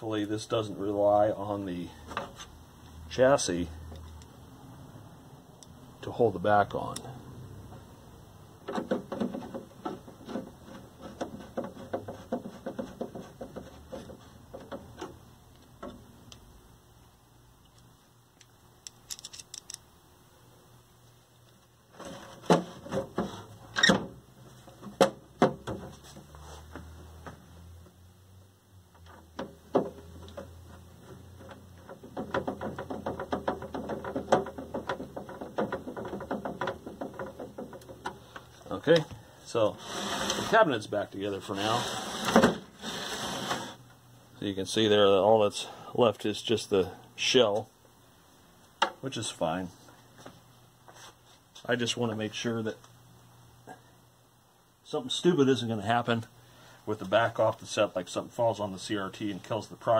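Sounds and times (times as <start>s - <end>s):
screwdriver clicking and creaking: 17.6s - 19.9s.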